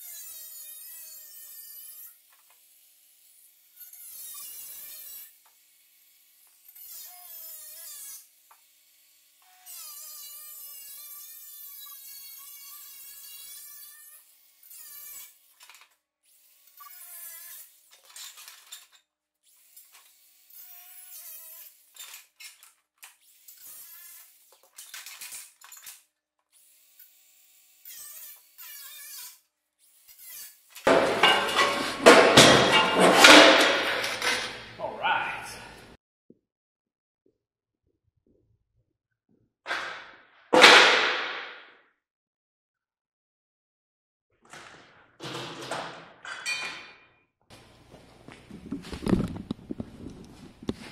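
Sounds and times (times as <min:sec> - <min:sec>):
power tool cutting sheet metal: 0:00.0 - 0:34.9.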